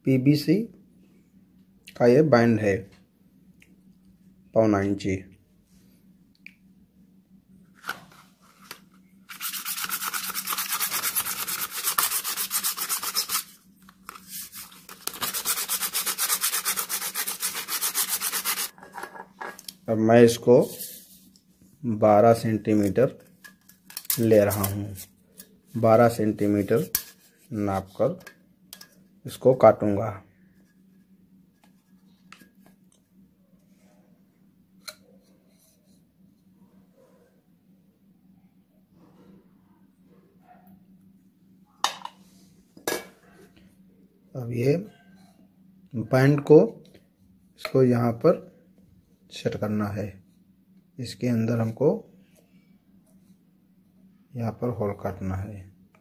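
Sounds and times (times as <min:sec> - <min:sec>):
faint steady hum: 0:00.0 - 0:56.0
sanding metal can: 0:09.3 - 0:13.6, 0:14.3 - 0:18.7.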